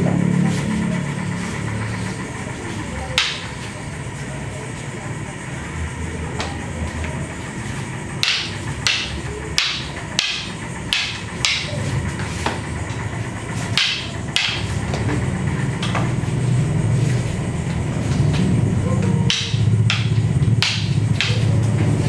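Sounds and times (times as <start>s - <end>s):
steady low hum: 0.0s - 22.0s
sticks clacking together: 3.1s - 3.6s, 8.2s - 13.0s, 13.6s - 15.2s, 18.1s - 21.8s.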